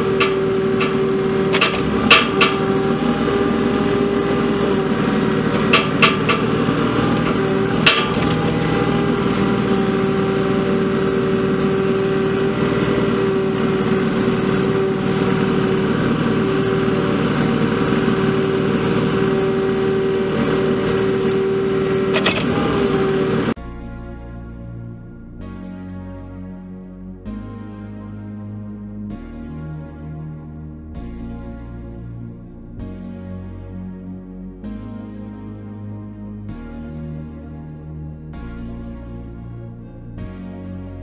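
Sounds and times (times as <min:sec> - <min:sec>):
sharp metal clanks: 0:00.0 - 0:02.9, 0:05.5 - 0:08.7
excavator diesel engine whining: 0:00.0 - 0:23.6.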